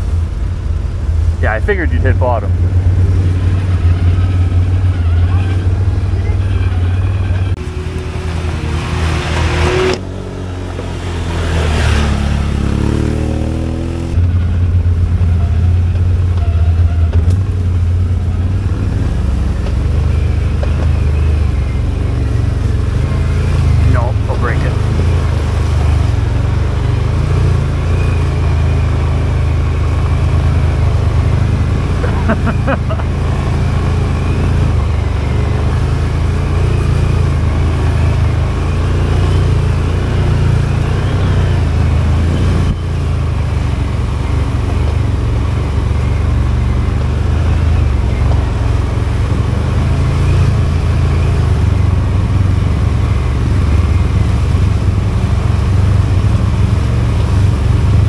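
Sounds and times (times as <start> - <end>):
atv engine droning: 0.0 - 58.0.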